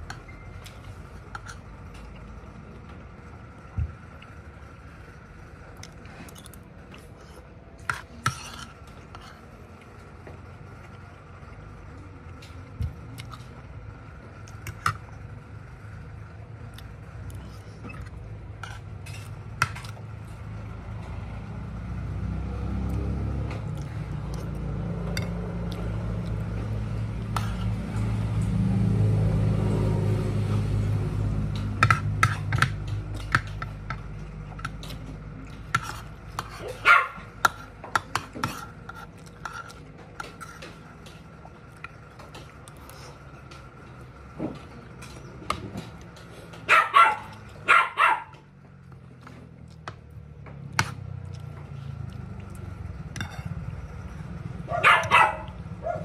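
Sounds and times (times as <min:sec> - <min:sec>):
vehicle passing: 0:13.2 - 0:56.0
spoon and fork clinking on a plate: 0:53.1 - 0:53.6.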